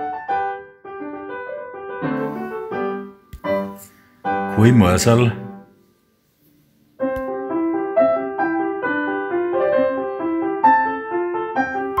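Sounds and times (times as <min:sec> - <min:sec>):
piano music: 0:00.0 - 0:05.8, 0:07.0 - 0:12.0.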